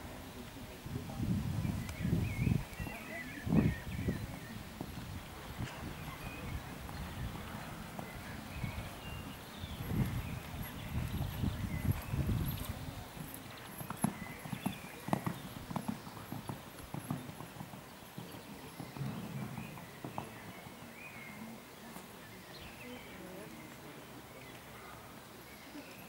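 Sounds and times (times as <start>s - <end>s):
horse hoofbeats on sand: 3.5s - 21.1s.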